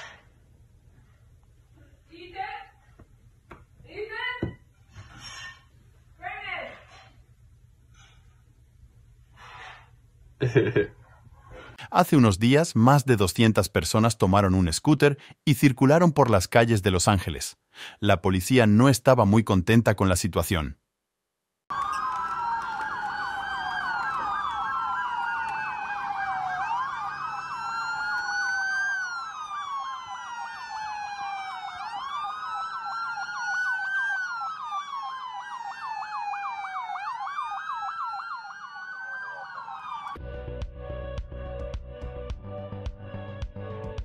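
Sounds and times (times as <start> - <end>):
police sirens wailing: 21.7 - 40.4
music: 40.2 - 44.0.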